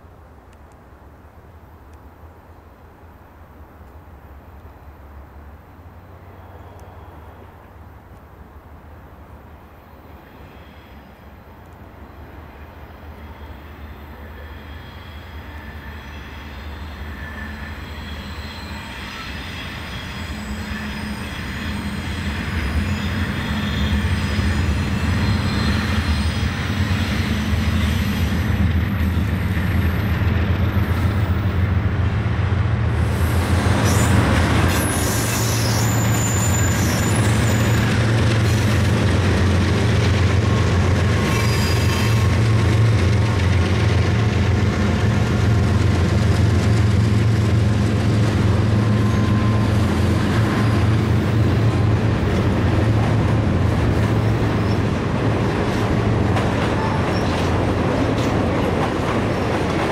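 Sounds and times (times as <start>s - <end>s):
diesel locomotive engine drone: 0.0s - 59.9s
high-pitched wheel squeal: 13.2s - 28.5s, 33.8s - 38.2s, 40.5s - 42.4s, 48.7s - 51.9s.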